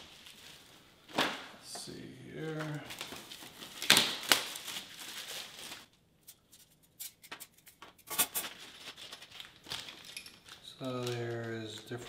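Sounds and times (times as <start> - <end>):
plastic bag crinkling and tearing: 0.0 - 1.4, 2.4 - 6.0, 8.1 - 12.0
wire pieces clicking and rattling: 9.4 - 12.0.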